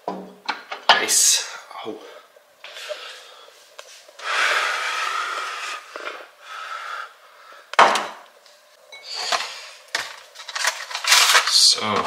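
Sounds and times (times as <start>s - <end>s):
rubbing and rustling handling: 9.3s - 12.0s.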